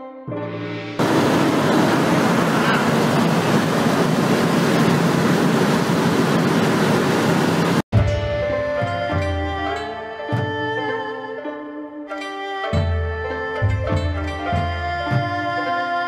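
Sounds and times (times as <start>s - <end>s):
music: 0.0s - 1.0s, 7.9s - 16.0s
aircraft engines droning: 0.4s - 7.9s.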